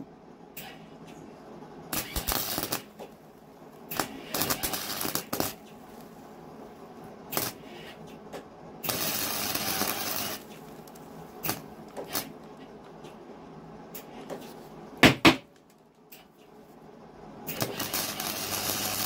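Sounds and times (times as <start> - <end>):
welder arc crackling: 1.9 - 6.4, 7.3 - 7.6, 8.8 - 12.4, 17.5 - 19.0.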